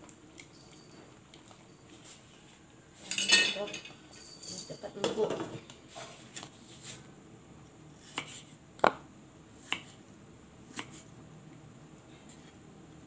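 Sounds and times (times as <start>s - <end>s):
kitchen utensils knocking: 3.1s - 4.0s.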